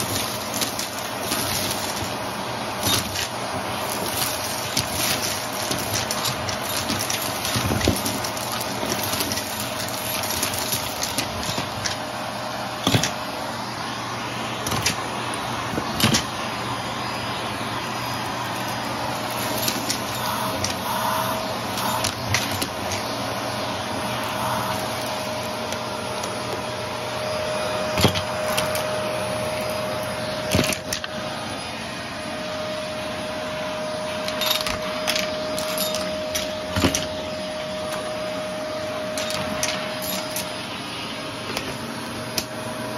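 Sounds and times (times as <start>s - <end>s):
debris crunching in vacuum: 0.0s - 12.1s
vacuum cleaner running: 0.0s - 42.9s.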